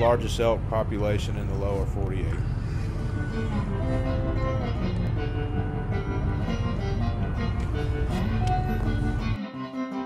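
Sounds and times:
car rumble: 0.0s - 9.4s
instrumental background music: 2.9s - 10.0s.

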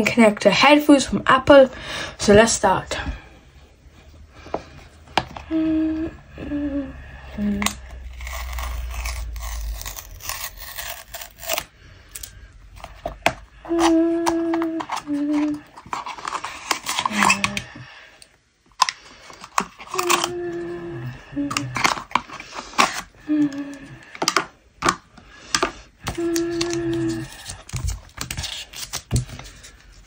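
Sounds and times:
cardboard and plastic being handled: 7.6s - 17.8s, 24.1s - 30.0s.

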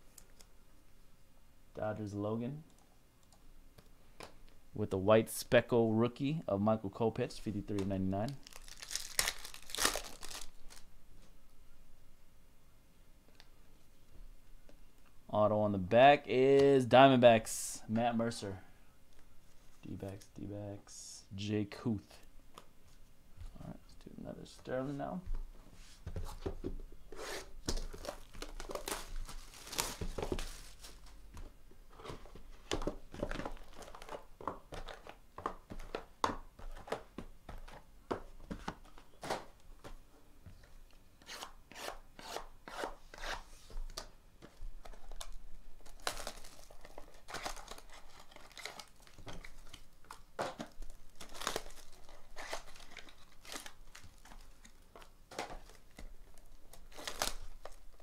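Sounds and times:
plastic wrap tearing and crinkling: 8.3s - 10.9s, 27.8s - 30.9s, 44.8s - 54.8s, 55.4s - 58.0s.

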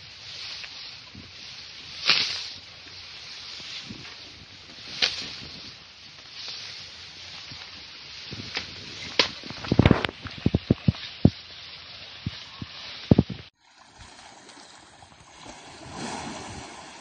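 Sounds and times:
rustling and crackling vegetation: 0.0s - 17.0s.

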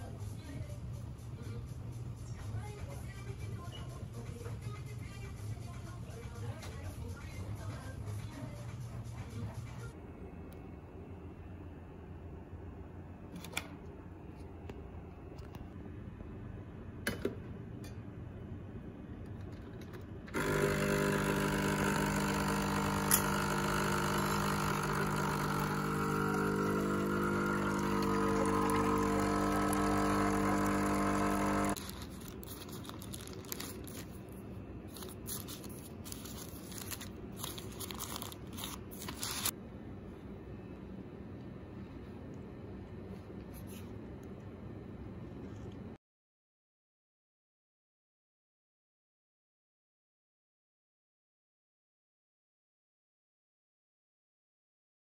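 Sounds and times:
coffee machine pump buzzing: 20.3s - 34.0s
coffee pouring into mug: 22.2s - 34.0s.

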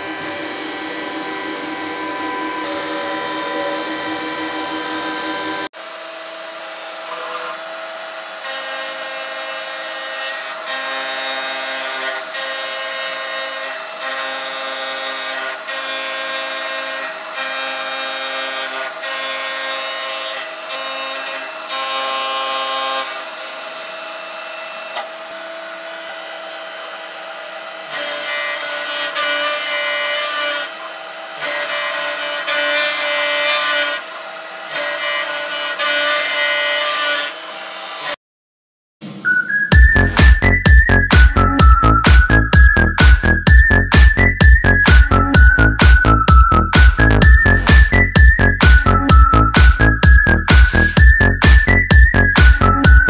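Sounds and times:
milling machine spindle whine: 0.0s - 9.0s, 23.3s - 35.9s
metal cutting noise: 0.0s - 38.2s, 39.7s - 53.0s.

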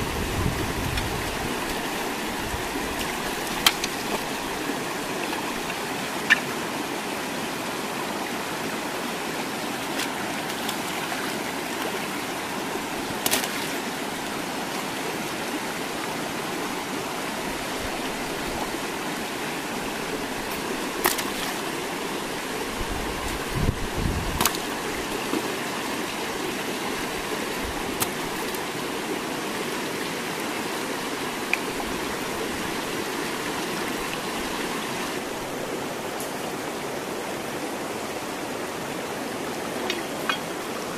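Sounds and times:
water splashing: 0.0s - 6.6s, 9.8s - 12.0s, 13.1s - 14.1s, 20.0s - 28.8s
stream rushing over rocks: 0.0s - 40.9s.

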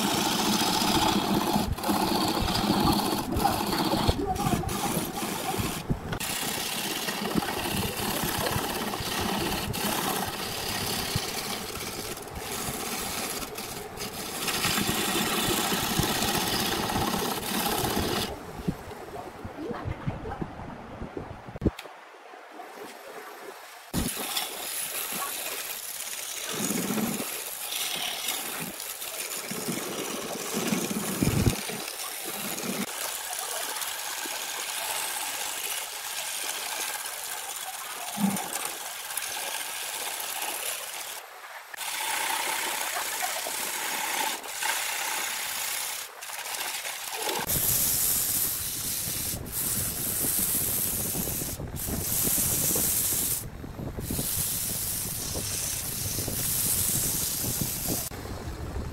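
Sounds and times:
lathe tool cutting wood: 0.0s - 18.3s, 25.7s - 28.9s, 41.8s - 47.6s
sandpaper on spinning wood: 0.0s - 18.3s, 23.9s - 53.4s, 54.0s - 58.1s.

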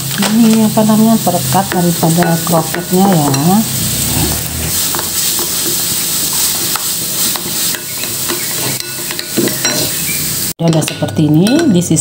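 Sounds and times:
spoon clinking against glass: 7.7s - 10.0s.

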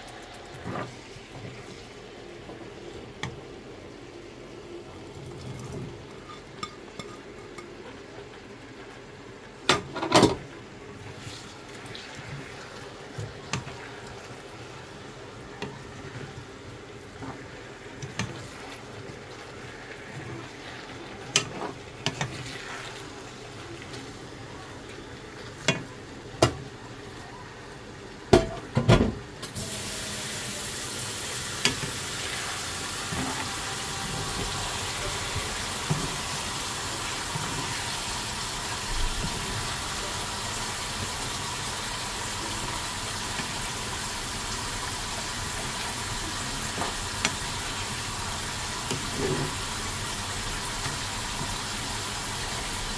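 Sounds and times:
loud sizzling hiss: 29.4s - 52.9s.

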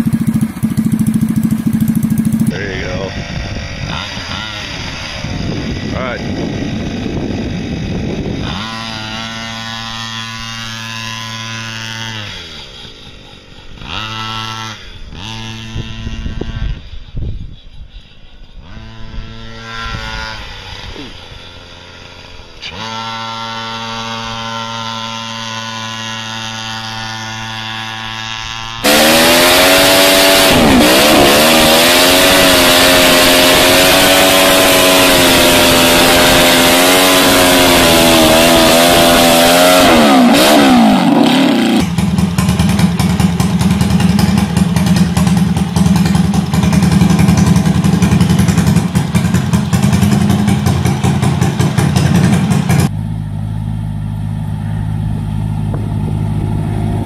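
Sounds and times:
single-cylinder engine idling: 0.0s - 3.6s, 41.2s - 57.0s
motorcycle engine revving high: 0.0s - 57.0s
small engine running: 0.0s - 57.0s
tyre spinning in a burnout: 22.6s - 41.8s.

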